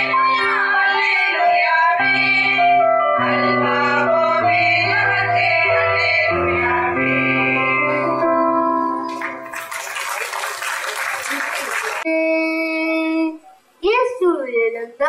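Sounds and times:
women singing together: 0.1s - 7.8s.

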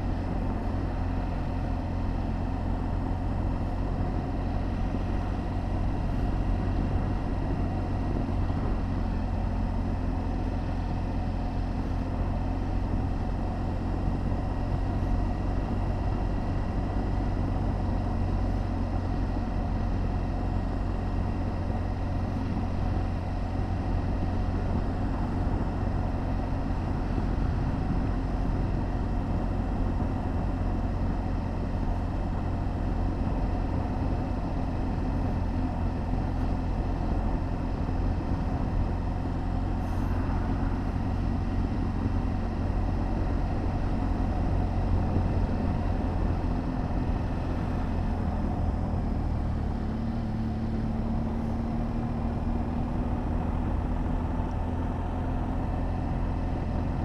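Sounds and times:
motorcycle engine cruising: 0.0s - 57.0s
road rumble: 0.0s - 57.0s
wind noise: 24.2s - 32.2s.

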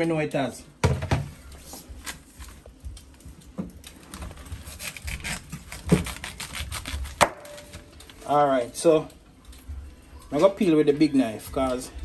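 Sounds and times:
knife scraping yam skin: 4.6s - 7.2s.

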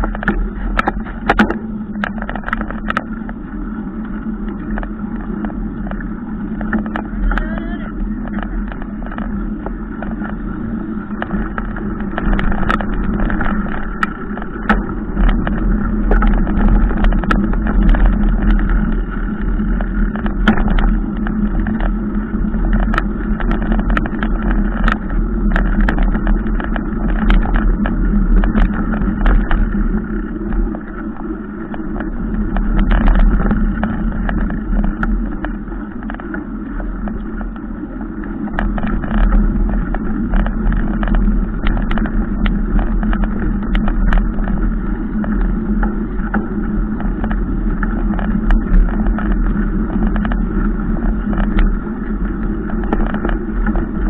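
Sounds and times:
bike clicking and rattling: 0.0s - 54.0s
wind rumble on microphone: 0.0s - 54.0s.

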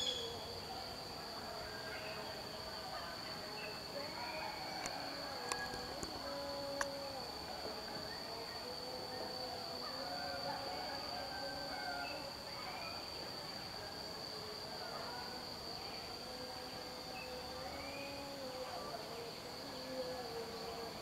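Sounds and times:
insect buzzing: 0.0s - 21.0s.

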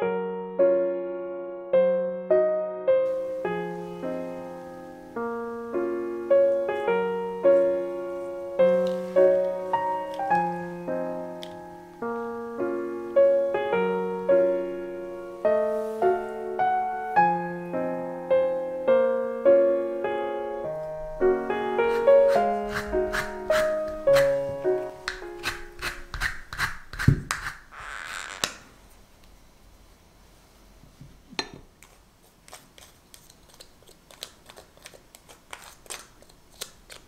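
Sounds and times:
gentle piano melody: 0.0s - 25.9s.

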